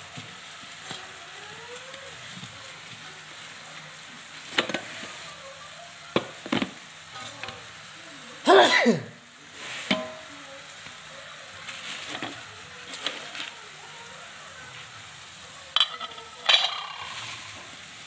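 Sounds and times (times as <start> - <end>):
plastic film crinkling: 11.5 - 13.7.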